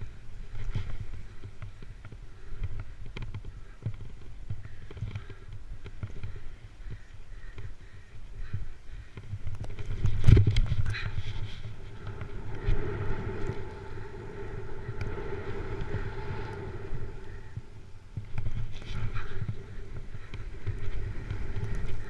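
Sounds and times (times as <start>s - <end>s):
wind rumbling on microphone: 0.0s - 22.0s
steady hum: 9.8s - 22.0s.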